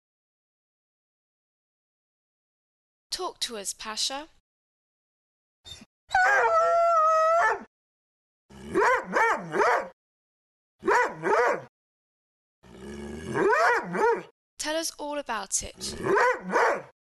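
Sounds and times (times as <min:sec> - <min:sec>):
dog howling and yowling: 0:06.1 - 0:07.7, 0:08.8 - 0:09.9, 0:13.4 - 0:14.3, 0:16.1 - 0:16.9.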